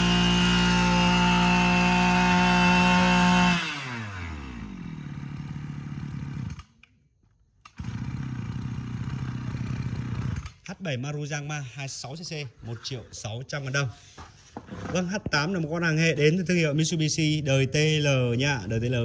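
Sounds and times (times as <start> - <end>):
brush cutter engine revving and idling: 0.0 - 6.8, 7.7 - 10.7.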